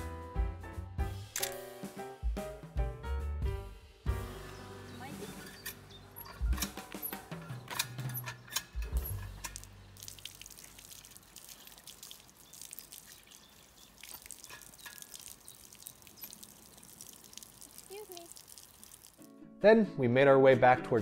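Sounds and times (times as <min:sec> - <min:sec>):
water splashing and dripping: 0:05.0 - 0:19.3.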